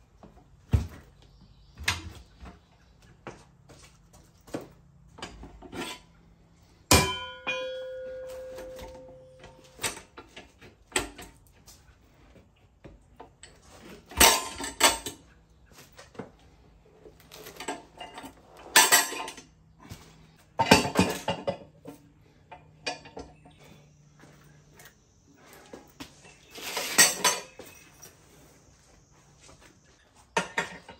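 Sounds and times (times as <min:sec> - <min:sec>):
ringing metal clang: 0:06.9 - 0:10.1
metal knocks and clatter: 0:20.6 - 0:22.0.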